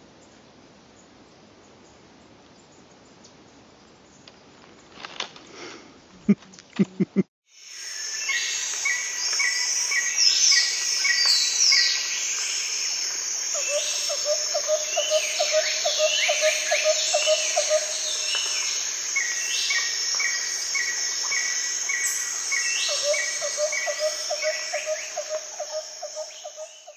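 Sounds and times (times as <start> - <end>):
high insect drone: 7.5 - 26.9.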